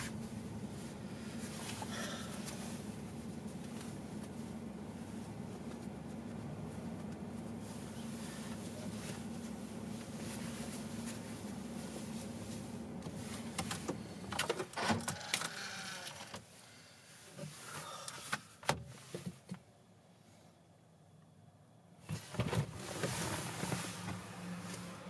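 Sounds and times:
car interior hum: 0.0 - 25.0
clicks and knocks in car cabin: 13.0 - 15.5, 18.0 - 19.7.

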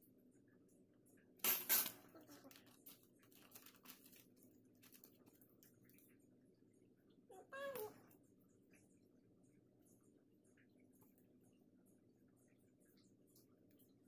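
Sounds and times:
low room hum: 0.0 - 14.0
paper crackling rustle: 2.2 - 5.8.

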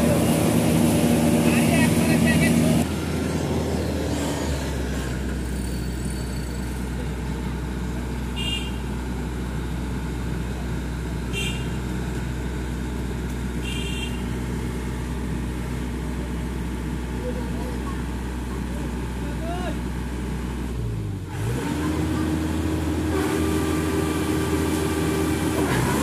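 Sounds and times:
diesel engine droning: 0.0 - 26.0.

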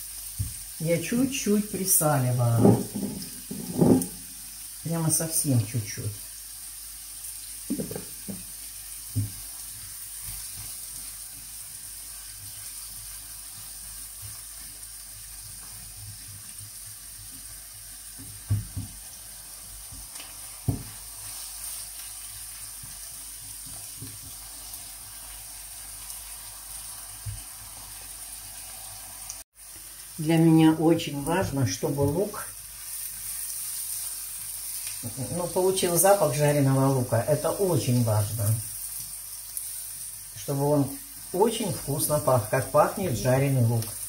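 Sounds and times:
onion sizzling in frying pan: 0.0 - 44.0
spatula knocking in pan: 2.5 - 4.2, 7.7 - 8.5, 19.9 - 21.0.

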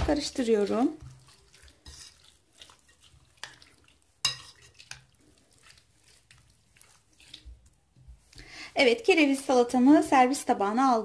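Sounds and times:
utensil scraping and clinking bowl: 0.0 - 8.1.

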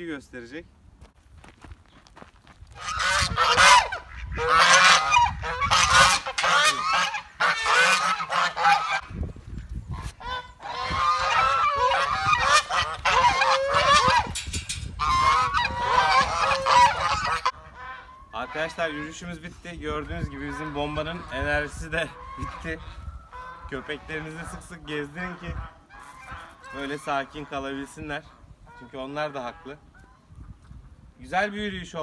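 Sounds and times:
geese honking: 2.8 - 9.2, 9.9 - 30.4.

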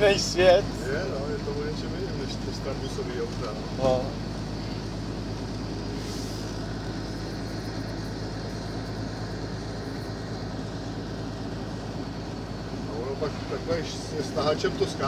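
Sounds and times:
diesel truck engine droning: 0.0 - 15.0
road noise: 0.0 - 15.0.

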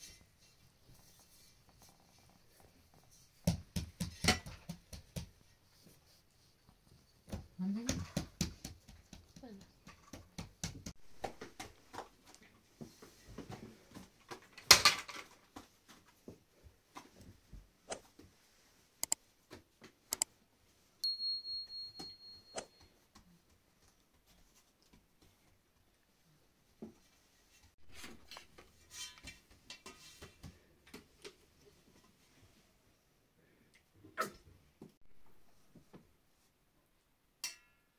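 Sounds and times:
clicks and taps of utensils: 37.4 - 37.8.

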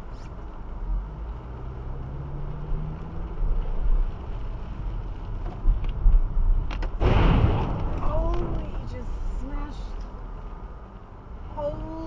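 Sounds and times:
car driving on wet street: 0.0 - 12.0
loud hit: 7.0 - 8.6.

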